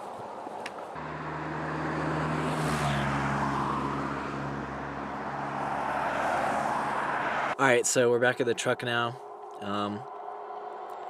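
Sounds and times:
low engine hum: 1.0s - 7.6s.

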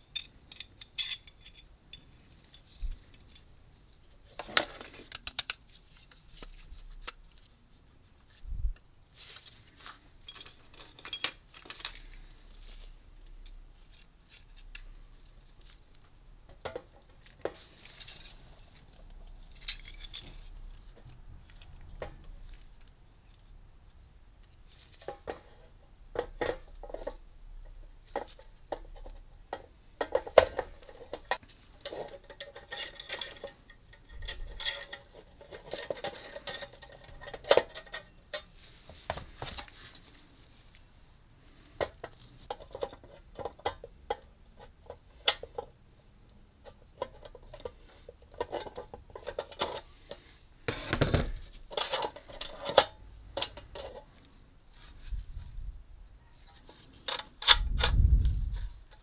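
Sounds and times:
metal clinks and scrapes: 0.0s - 3.5s, 9.4s - 15.5s, 17.5s - 21.8s, 30.1s - 38.6s.

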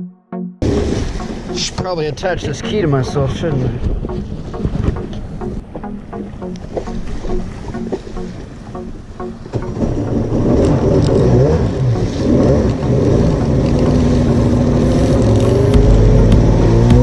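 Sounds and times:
water washing past hull: 0.6s - 17.0s
jet ski engine: 2.8s - 17.0s.

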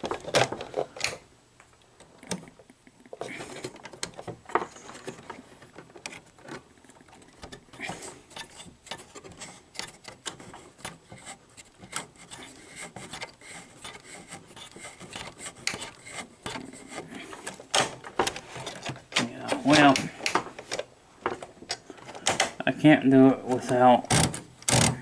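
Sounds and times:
vcr loading mechanism clicking and scraping: 3.3s - 22.6s.

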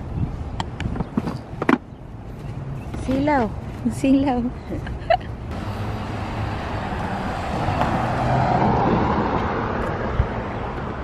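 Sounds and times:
road traffic rumble and hiss: 0.0s - 11.0s.

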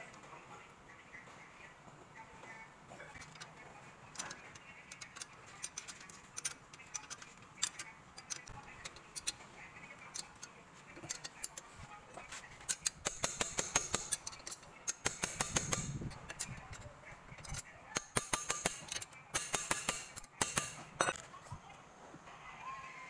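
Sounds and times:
ratchet wrench clicking: 4.1s - 9.4s, 12.6s - 20.8s.

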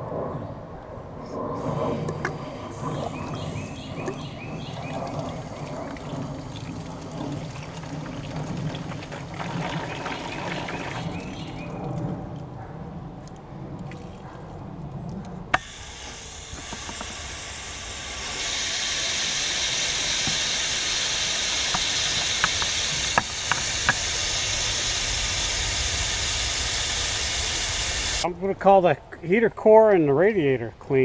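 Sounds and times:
water rushing through hose: 1.7s - 12.1s, 15.5s - 28.3s.

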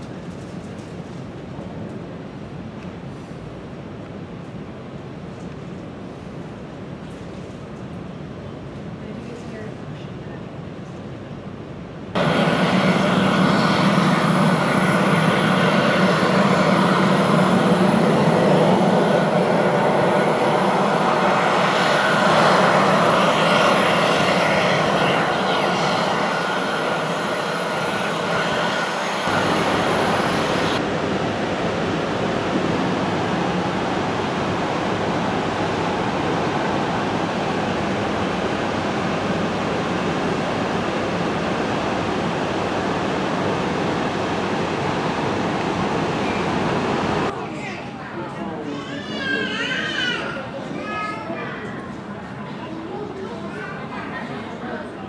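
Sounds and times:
jet engines roaring: 12.1s - 47.4s.

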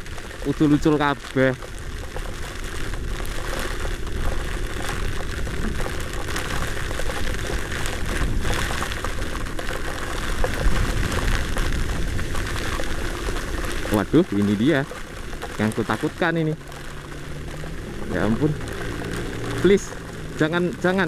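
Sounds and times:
wind buffeting microphone: 1.7s - 15.7s.

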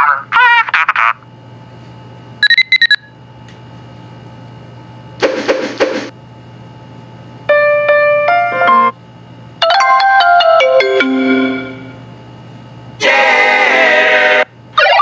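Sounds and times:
melodic ringtone chime: 9.6s - 12.0s.

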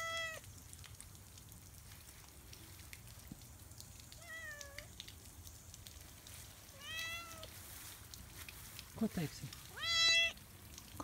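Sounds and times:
cat meowing: 0.0s - 0.4s, 4.2s - 4.9s, 6.8s - 7.5s, 9.8s - 10.4s
faint ticks: 0.4s - 9.7s.

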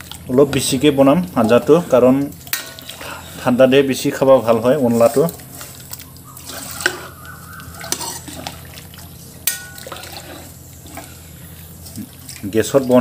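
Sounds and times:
spoon stirring thick liquid: 0.0s - 13.0s
spoon clinking against pot: 7.8s - 8.4s, 9.4s - 10.2s.

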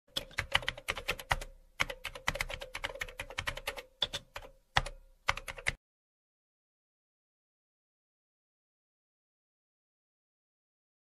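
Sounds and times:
computer keyboard typing: 0.1s - 5.8s.

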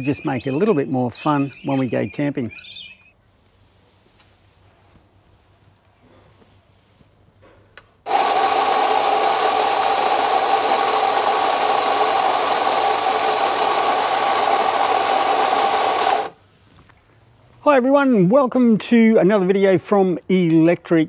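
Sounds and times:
coffee grinder grinding beans: 8.1s - 16.4s.

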